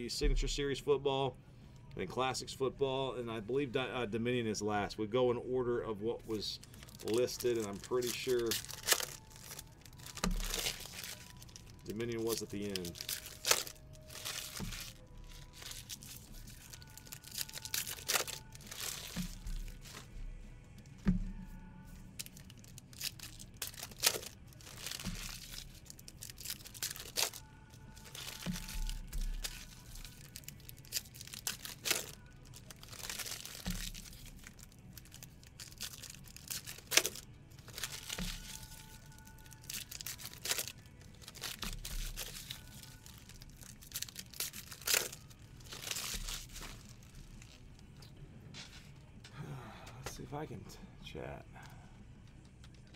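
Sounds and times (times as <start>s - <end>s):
wrappers tearing and crinkling: 6.2s - 20.2s, 22.1s - 48.1s
cards rustling: 6.3s - 20.1s, 22.2s - 48.0s.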